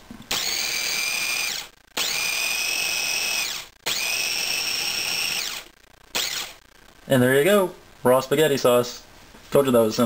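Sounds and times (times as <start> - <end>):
food processor motor whine: 0.3 - 6.6.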